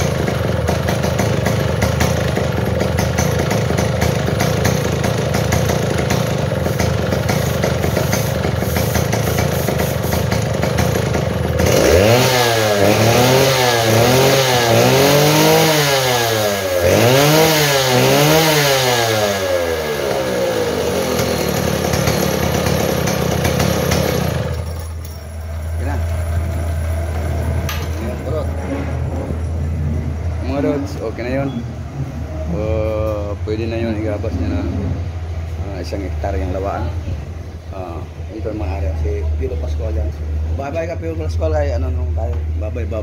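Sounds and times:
chainsaw idling and revving: 0.0 - 28.4.

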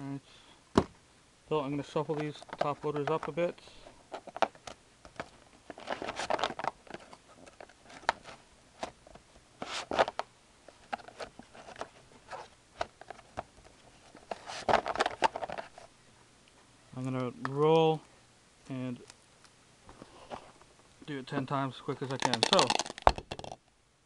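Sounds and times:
plastic card holders clattering: 2.1 - 3.4, 14.2 - 15.7, 21.9 - 23.6.

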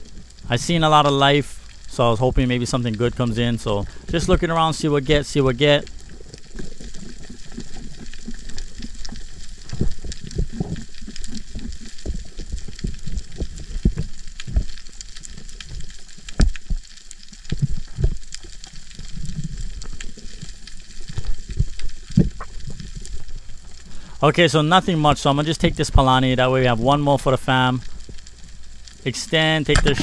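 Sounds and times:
low thumps of water: 2.2 - 23.8
underwater clicks and pops: 6.0 - 23.2, 29.7 - 30.0.

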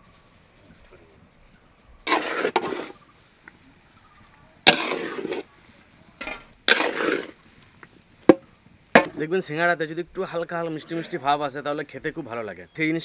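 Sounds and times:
metal spatula scraping a pan: 2.0 - 3.0, 4.7 - 5.5, 6.2 - 7.4.

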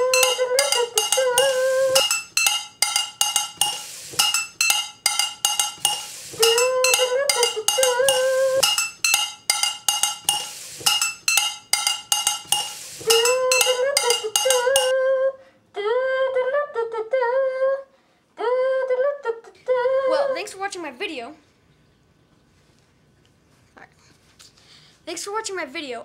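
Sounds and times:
chopstick striking frying pan: 0.0 - 14.9.

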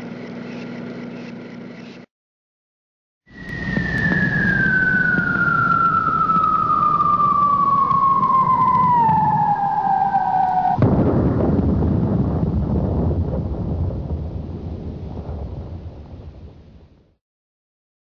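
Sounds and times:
falling bomb whistle: 3.3 - 11.0
rushing noise: 3.3 - 11.4
rumbling explosion: 3.4 - 17.2.

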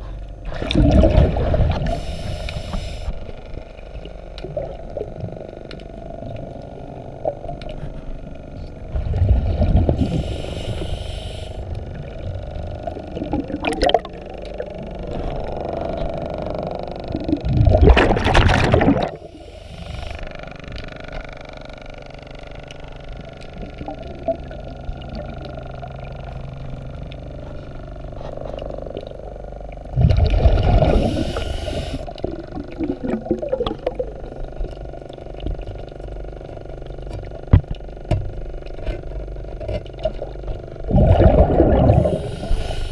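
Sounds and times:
low underwater rumble: 0.0 - 42.9
exhaled bubbles rushing underwater: 0.4 - 20.1, 23.5 - 27.1, 28.6 - 36.0, 39.9 - 42.9.

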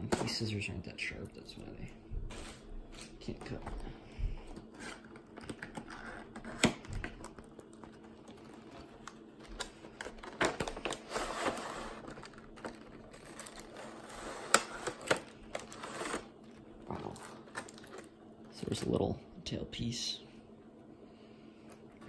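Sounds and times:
plastic packaging crinkling: 4.6 - 18.2.

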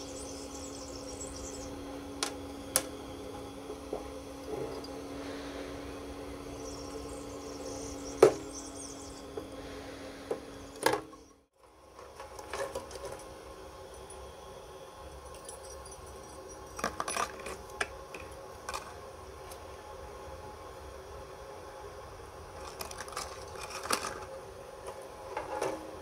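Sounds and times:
steady low hum: 0.0 - 26.0
metal parts handling: 22.6 - 24.2.

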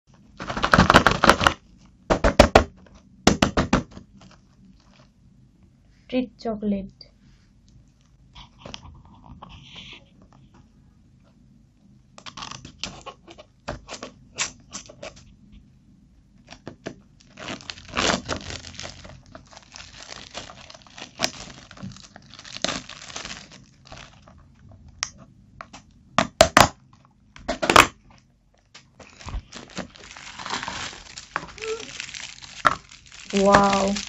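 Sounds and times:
plastic film crinkling: 0.3 - 1.9, 4.1 - 5.1, 16.5 - 24.7, 28.6 - 34.0
scissors cutting plastic film: 16.5 - 24.4, 29.5 - 34.0.

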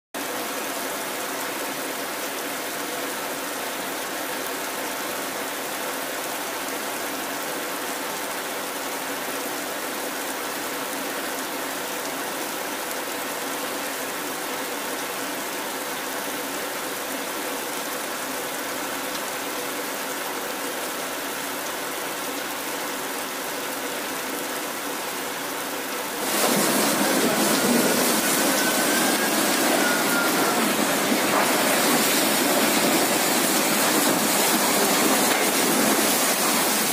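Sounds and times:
heavy rain and wind: 0.2 - 36.9
wind and rain through trees: 0.2 - 36.9
faint wavering whistle: 26.9 - 31.8.

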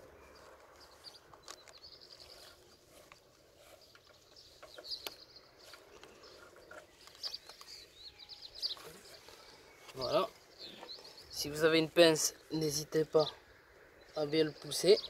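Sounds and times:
small birds chirping: 0.0 - 15.0
clicks and rustling of wires: 0.4 - 7.8.

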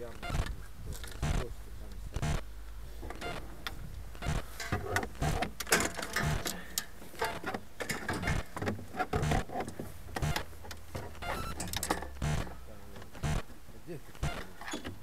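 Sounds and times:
fishing rods and reels rattling: 4.4 - 12.2.

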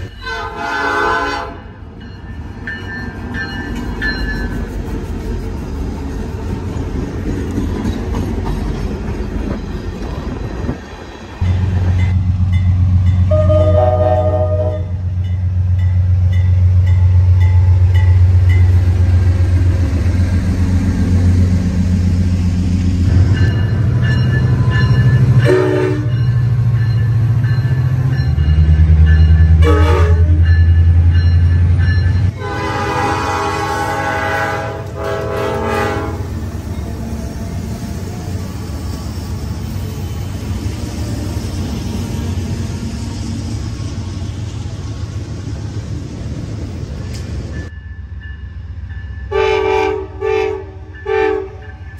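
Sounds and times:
diesel locomotive rumbling: 0.0 - 51.9
train rolling past: 0.0 - 51.9
locomotive air horn blasts: 0.2 - 1.8, 13.2 - 15.0, 25.4 - 26.2, 29.6 - 30.5, 32.3 - 36.4, 49.3 - 51.7.

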